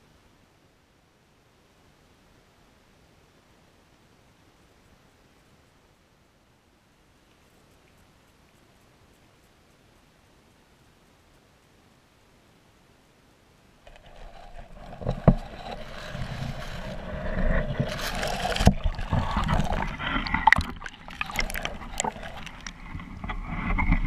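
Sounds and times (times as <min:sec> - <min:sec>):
muffled water sloshing and gurgling: 0:13.9 - 0:24.0.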